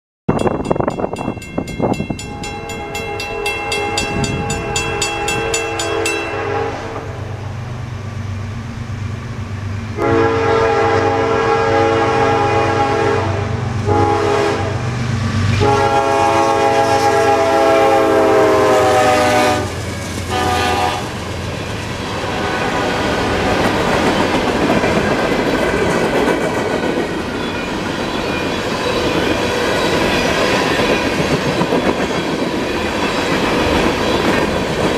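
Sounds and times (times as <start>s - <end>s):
crossing bell dinging: 0.3s - 7.0s
freight cars rumbling past: 1.3s - 34.9s
locomotive air horn blasts: 2.2s - 7.2s, 10.0s - 14.8s, 15.6s - 21.2s, 22.2s - 23.2s.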